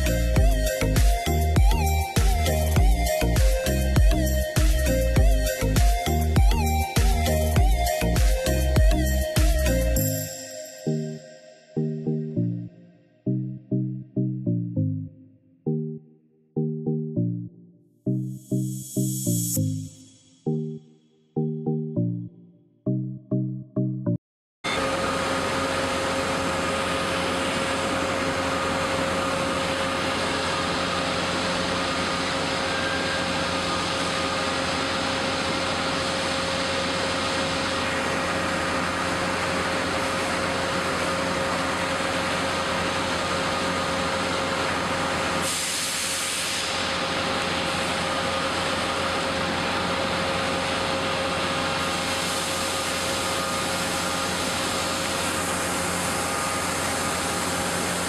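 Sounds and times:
factory machinery drone: 24.7 - 58.0.

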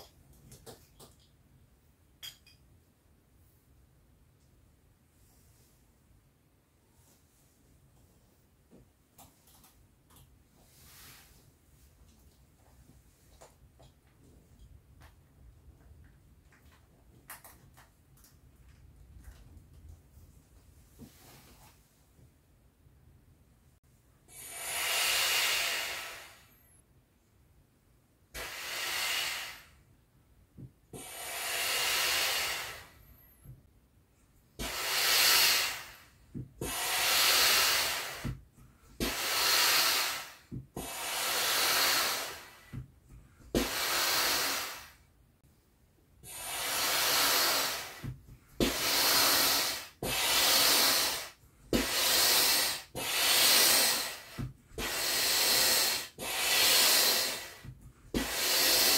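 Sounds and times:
hand pump air rushing: 46.3 - 58.9.

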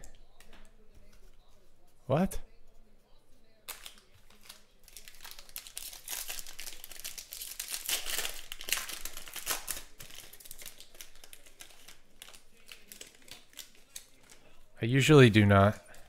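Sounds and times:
foil wrapper crinkling and tearing: 3.6 - 14.6.

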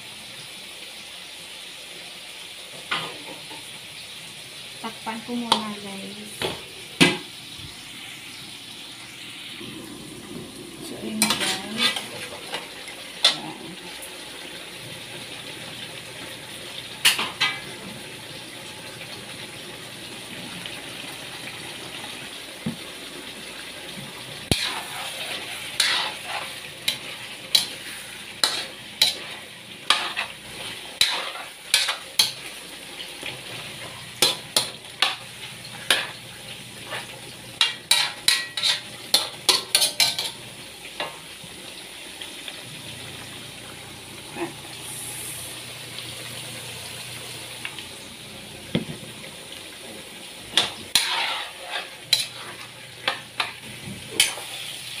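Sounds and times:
chicken sizzling in a wok: 0.0 - 55.0
metal spatula clanking and scraping: 11.1 - 13.5, 24.5 - 30.4, 31.0 - 32.5, 35.8 - 36.2, 36.9 - 40.4, 50.5 - 54.5.

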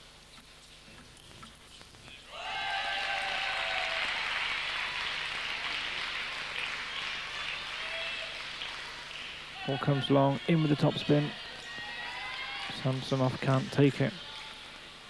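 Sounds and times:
people shouting: 2.3 - 4.1
crowd applauding: 2.3 - 14.8.

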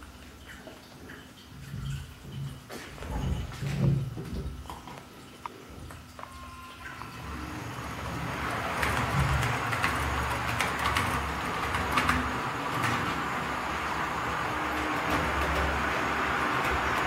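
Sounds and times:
track clicks: 5.4 - 17.0.

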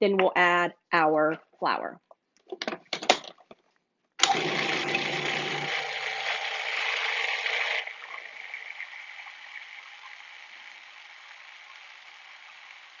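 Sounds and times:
food processor motor running: 4.2 - 13.0.

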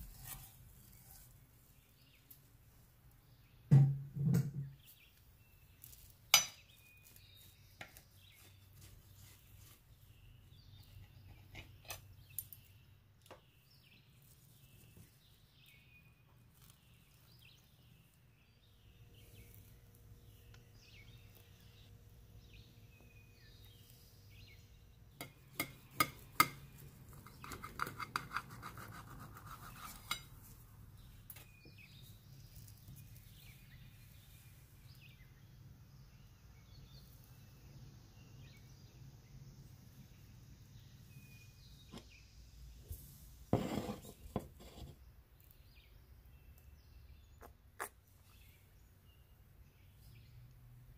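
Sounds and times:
pizza cutter scraping plate: 43.5 - 45.0.

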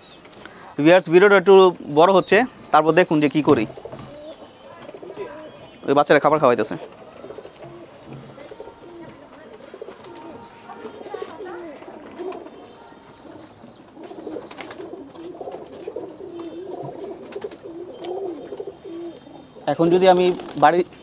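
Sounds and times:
pigeons cooing: 0.0 - 21.0.

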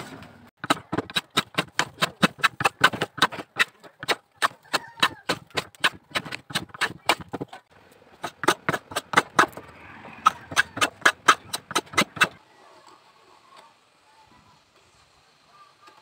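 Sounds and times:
hand plane shaving wood: 0.6 - 7.6, 8.2 - 9.6, 10.2 - 12.4.

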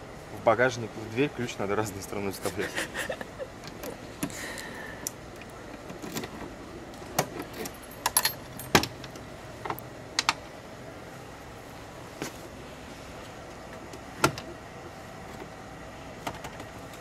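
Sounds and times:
keys jangling: 7.4 - 8.8.

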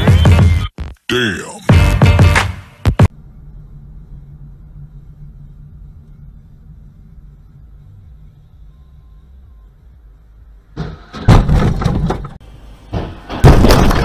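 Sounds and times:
low running rumble: 3.1 - 10.8
car crash impact: 10.7 - 14.0
clattering: 10.8 - 14.0.

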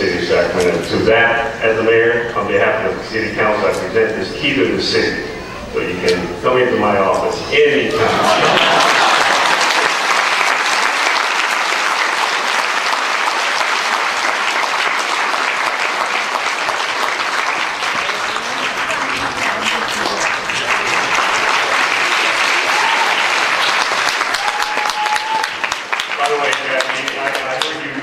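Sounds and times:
audience applauding: 8.1 - 28.0.

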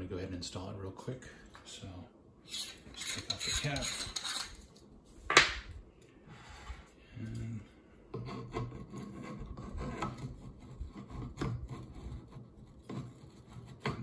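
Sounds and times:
metal parts rubbing and scraping: 2.4 - 4.9.

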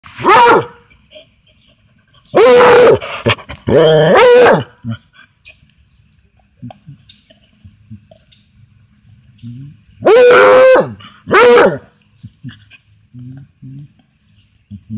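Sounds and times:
dog barking: 0.2 - 0.8, 4.1 - 4.7, 10.0 - 11.9.

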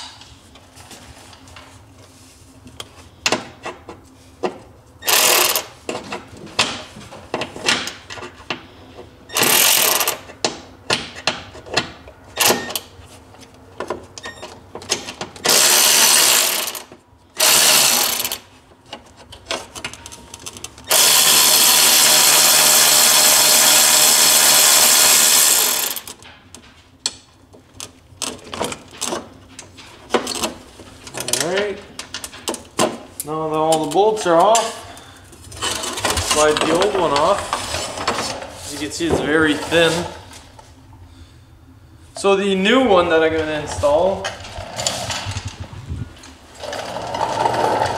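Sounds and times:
electric ratchet spinning bolts: 5.0 - 5.7, 9.3 - 10.3, 15.4 - 18.5, 20.8 - 26.2
tool and bolts clicking and knocking: 9.3 - 12.9, 25.0 - 33.0.

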